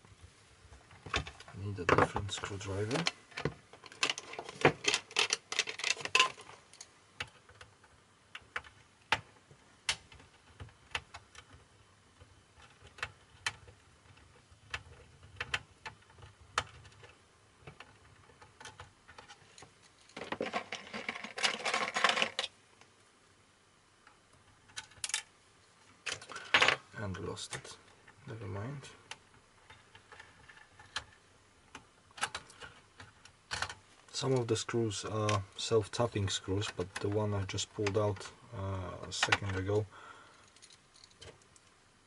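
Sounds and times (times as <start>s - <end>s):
tools clicking and clattering: 2.9s - 7.6s.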